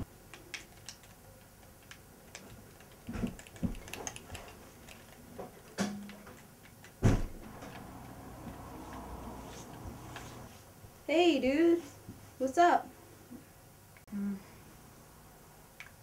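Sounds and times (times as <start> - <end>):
loud thump: 7.0 - 7.4.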